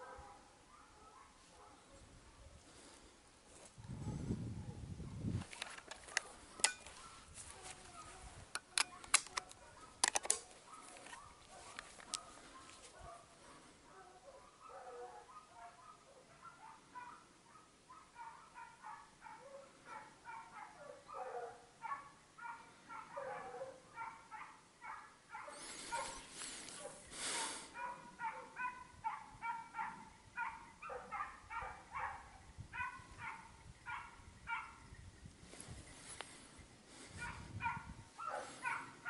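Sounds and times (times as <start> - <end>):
hounds baying: 9.2 - 34.9, 37.1 - 39.0
short rustle: 25.6 - 27.7.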